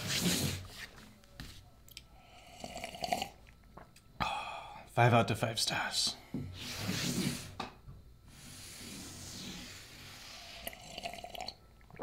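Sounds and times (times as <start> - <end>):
person slurping coffee: 2.5 - 3.4, 8.6 - 11.6
soft airy hiss: 4.2 - 11.0.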